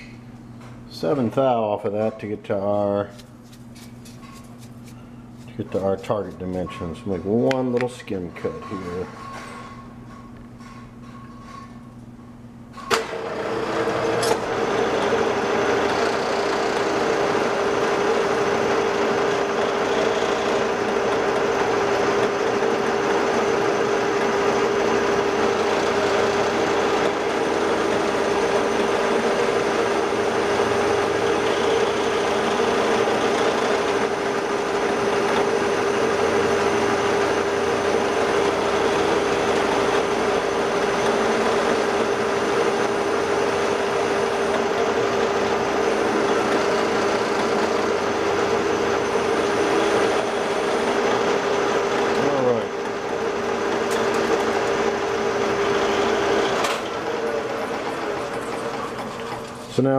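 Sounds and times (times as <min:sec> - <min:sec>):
steady whine: 0:12.8 - 0:59.9
metal lathe running: 0:12.9 - 0:59.9.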